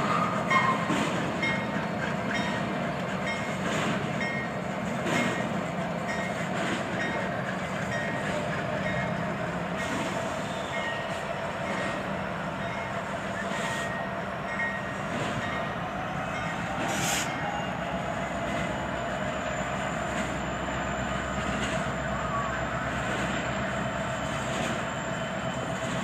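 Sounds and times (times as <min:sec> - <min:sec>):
train wheel clacks: 0:00.0 - 0:17.5
freight train rumbling past: 0:00.0 - 0:26.0.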